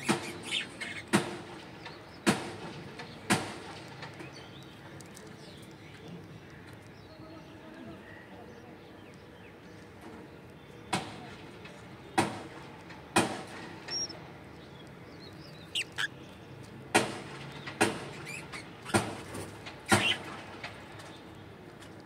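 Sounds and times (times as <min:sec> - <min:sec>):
faint high bird chirps: 0:13.9 - 0:16.4.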